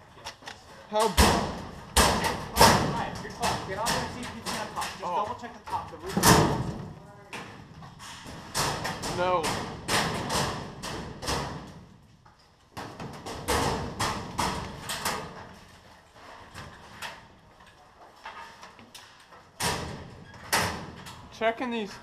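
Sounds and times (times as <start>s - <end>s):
hard objects knocking and clattering: 1.0s - 15.8s.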